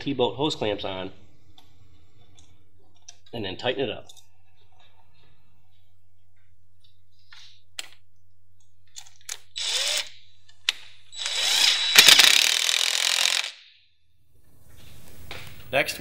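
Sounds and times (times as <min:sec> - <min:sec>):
cordless driver spinning: 0:09.3 - 0:13.6.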